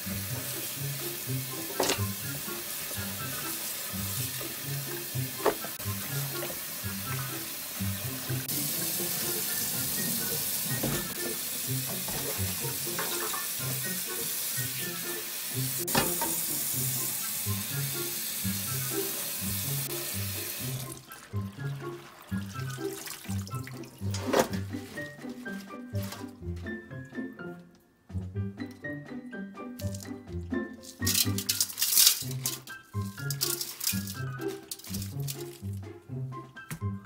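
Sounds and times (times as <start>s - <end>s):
tap water running into sink: 0.0s - 25.4s
hands rinsing leafy greens: 0.0s - 27.3s, 29.8s - 36.2s.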